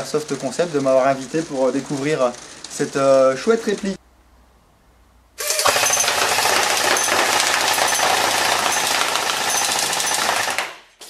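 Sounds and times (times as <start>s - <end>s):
airsoft gun firing rapid burst: 5.4s - 10.9s.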